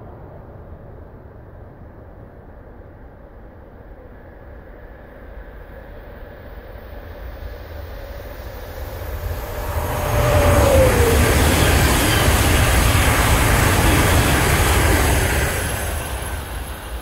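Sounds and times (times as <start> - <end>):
high-speed train rushing past: 5.4 - 17.0
whine dropping in pitch: 8.8 - 16.7.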